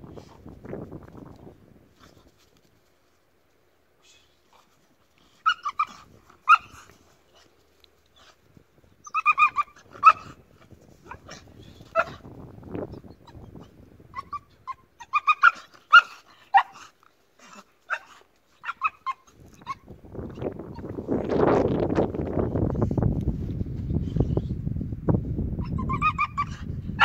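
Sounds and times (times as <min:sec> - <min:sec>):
wind noise on microphone: 0:00.0 - 0:02.8, 0:05.7 - 0:07.2, 0:08.2 - 0:15.1, 0:19.0 - 0:27.0
dog yipping and barking: 0:05.4 - 0:06.8, 0:09.0 - 0:10.4, 0:11.1 - 0:12.2, 0:13.2 - 0:16.9, 0:17.9 - 0:19.9, 0:25.6 - 0:27.0.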